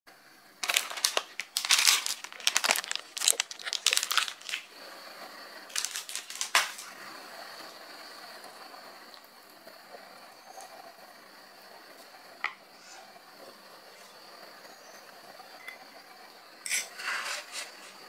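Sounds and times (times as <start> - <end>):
plastic packet crinkling: 0.6 - 4.7, 5.7 - 6.9.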